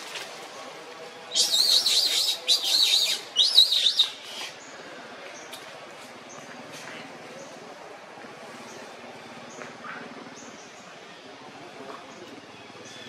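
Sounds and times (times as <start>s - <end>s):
high wavering animal calls: 1.3s - 4.6s.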